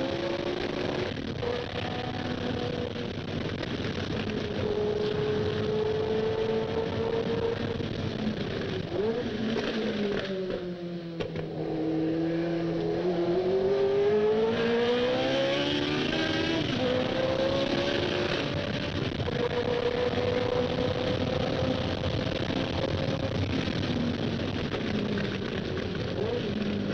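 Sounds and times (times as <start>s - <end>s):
racing car engine: 0.0s - 26.9s.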